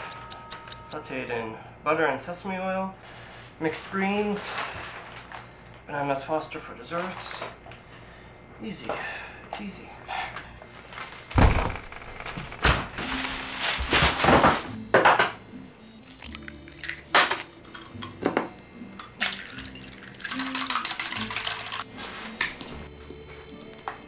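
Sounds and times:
background music: 0:00.0 - 0:01.2, 0:13.0 - 0:24.0.

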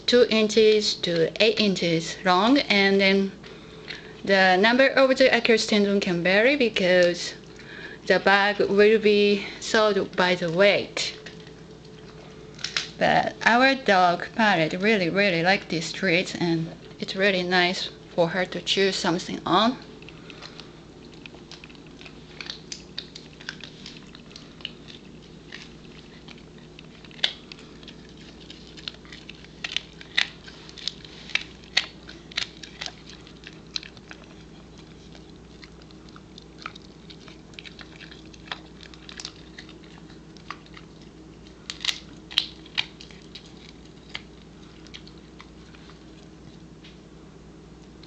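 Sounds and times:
faint steady hum: 0:00.0 - 0:48.0
dog crunching a chew: 0:09.9 - 0:13.0, 0:18.0 - 0:47.0.

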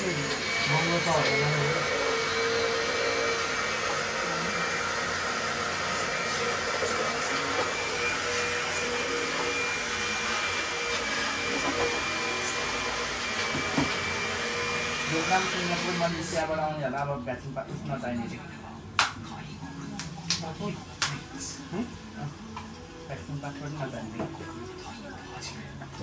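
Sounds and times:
electric fan motor whirring: 0:00.0 - 0:16.6.

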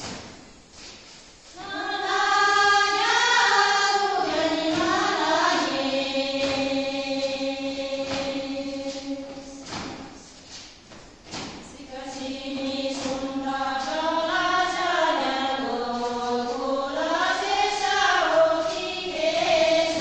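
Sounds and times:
women singing together: 0:01.5 - 0:10.6, 0:11.2 - 0:20.0
foot stamps: 0:06.4 - 0:06.8, 0:08.0 - 0:11.8.

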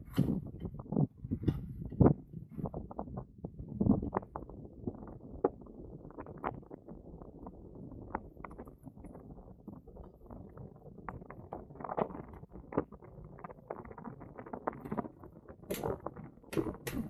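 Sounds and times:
bike rattling and knocking: 0:00.0 - 0:03.1, 0:10.3 - 0:17.0.

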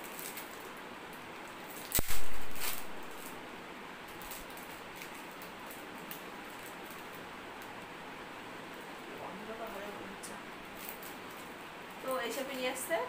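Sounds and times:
paper packet crinkling: 0:01.6 - 0:03.4.

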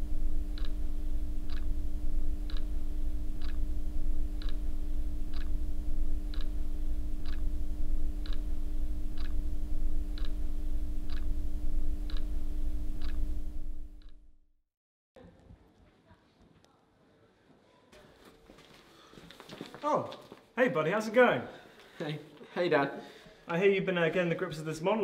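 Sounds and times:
clock ticking: 0:00.0 - 0:14.2
steady low hum: 0:00.0 - 0:14.4.

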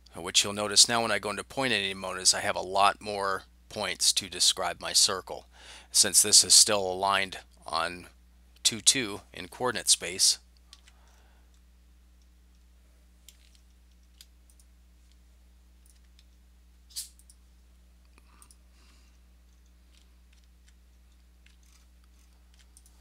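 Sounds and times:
low steady hum: 0:00.0 - 0:23.0
computer mouse clicks: 0:19.6 - 0:23.0.

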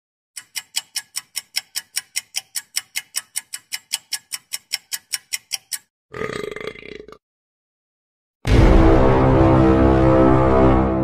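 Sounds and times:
clock ticking: 0:00.4 - 0:05.9.

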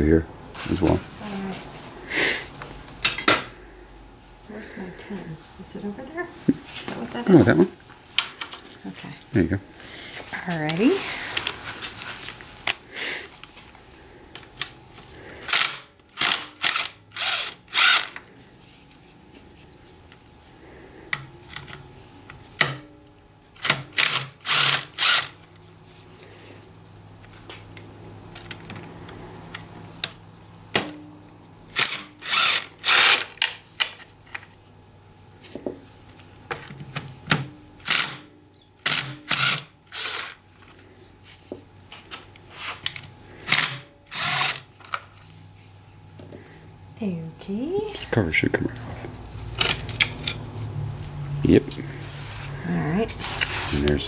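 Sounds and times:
power drill whirring: 0:15.4 - 0:18.2, 0:23.6 - 0:25.4, 0:31.7 - 0:33.4, 0:38.9 - 0:40.4, 0:43.4 - 0:44.7.

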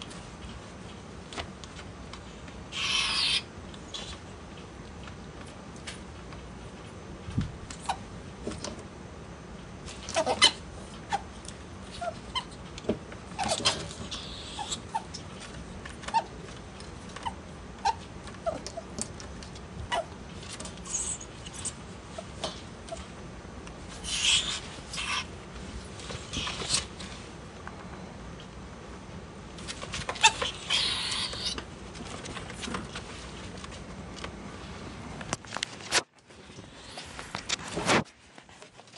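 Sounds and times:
ferrets hissing: 0:02.7 - 0:03.5, 0:24.0 - 0:25.3, 0:30.2 - 0:31.6
ferrets dooking chirps: 0:02.7 - 0:04.2, 0:13.4 - 0:15.2, 0:20.8 - 0:21.8, 0:24.0 - 0:25.3, 0:30.2 - 0:31.6.

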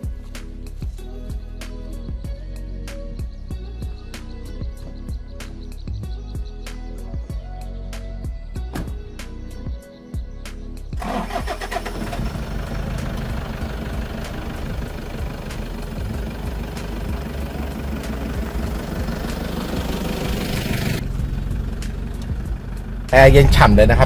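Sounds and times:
diesel engine starting and idling: 0:11.0 - 0:24.0.

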